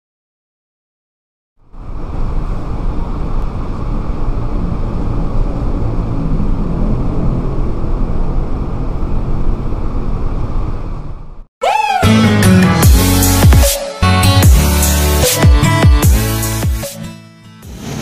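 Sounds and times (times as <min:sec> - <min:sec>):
road traffic rumble: 0:01.6 - 0:11.5.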